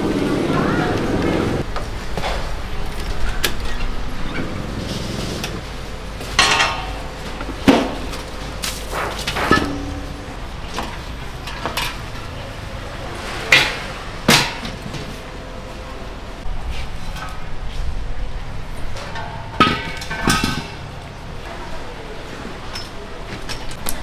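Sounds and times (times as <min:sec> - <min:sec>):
utensils and dishes clinking: 0:06.2 - 0:12.6, 0:18.9 - 0:21.7.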